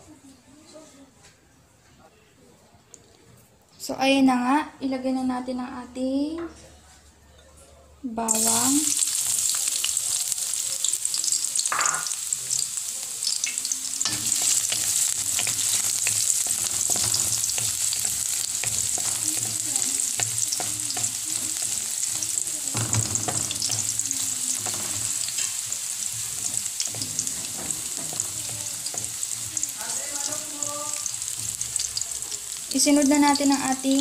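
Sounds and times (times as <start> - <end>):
garlic sizzling in oil: 8.3 - 34.0
wooden spatula scraping pan: 14.1 - 30.5.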